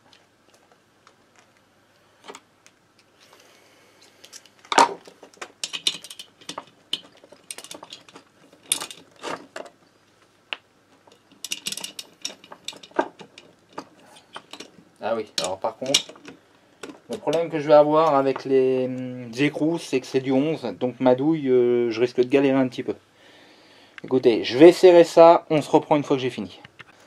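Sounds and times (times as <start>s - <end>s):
metal tools clinking: 5.6s - 9.8s, 11.0s - 18.5s.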